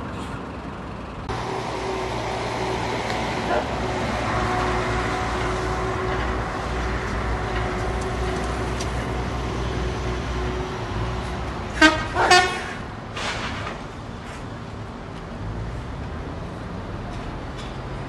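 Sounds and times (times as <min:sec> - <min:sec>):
street traffic: 0:00.0 - 0:18.0
truck diesel engine rumbling: 0:00.0 - 0:18.0
truck horn blasts: 0:11.7 - 0:12.9.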